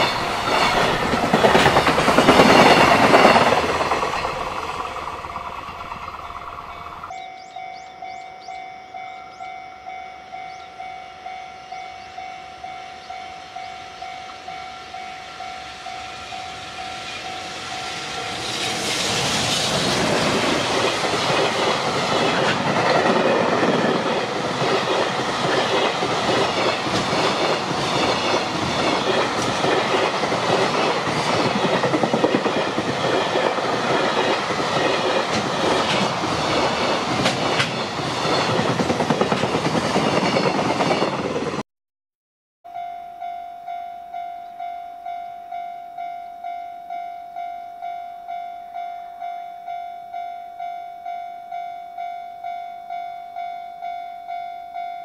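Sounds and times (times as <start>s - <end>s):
train wheels clacking on rails: 0.0s - 8.2s, 12.8s - 41.6s.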